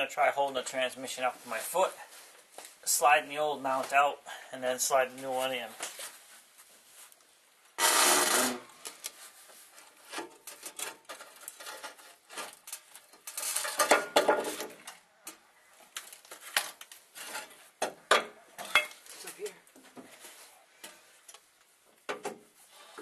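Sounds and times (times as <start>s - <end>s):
metal knocks and scrapes: 17.1s - 18.9s.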